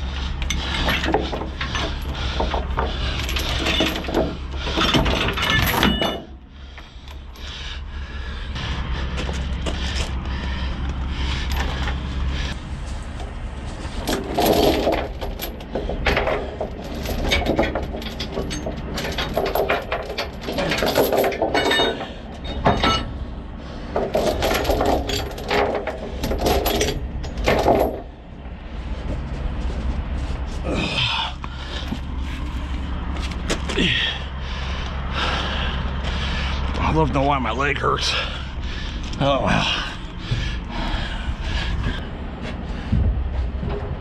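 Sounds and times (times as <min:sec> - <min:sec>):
steel chains clanking on wood: 0:00.0 - 0:07.6, 0:09.1 - 0:12.6, 0:13.9 - 0:28.2
steady low hum: 0:00.0 - 0:44.0.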